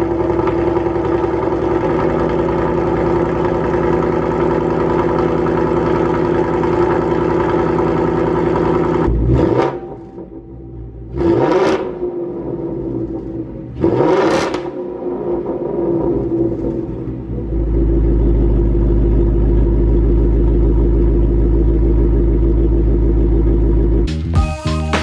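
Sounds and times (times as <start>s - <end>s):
car engine revving: 0.0s - 24.1s
car engine idling: 0.0s - 24.3s.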